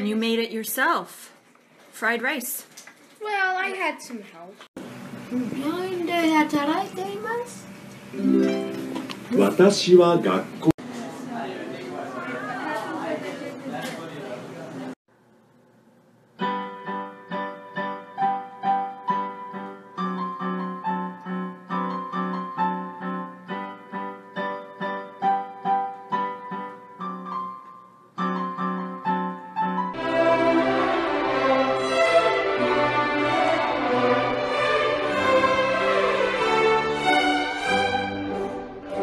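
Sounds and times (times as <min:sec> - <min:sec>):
electronic keyboard piano sound: 0:16.4 - 0:34.5
group of violins playing: 0:30.0 - 0:39.0.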